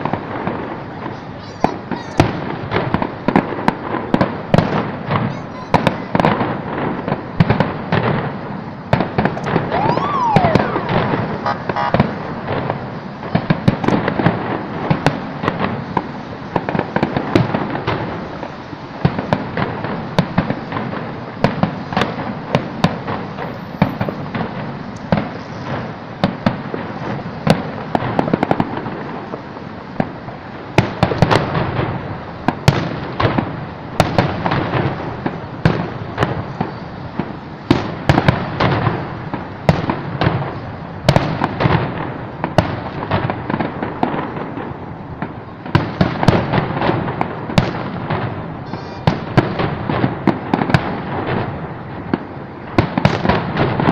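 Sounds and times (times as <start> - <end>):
fireworks bangs and crackling: 0.0 - 53.9
rising and falling tone: 9.7 - 11.9.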